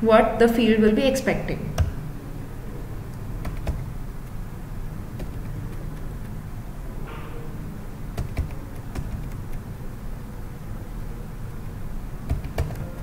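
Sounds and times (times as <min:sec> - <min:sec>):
low background hum: 0:00.0 - 0:13.0
keyboard keys clicking: 0:01.7 - 0:02.0, 0:03.1 - 0:04.4, 0:05.1 - 0:06.4, 0:08.2 - 0:09.7, 0:12.2 - 0:13.0.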